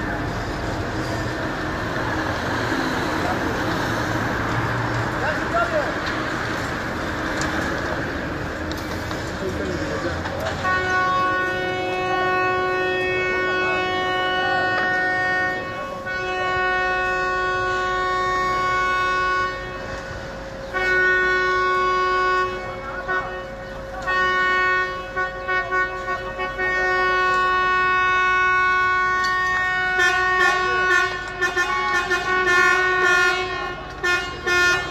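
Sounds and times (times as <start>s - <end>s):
vehicle horns blasting: 9.7s - 34.9s.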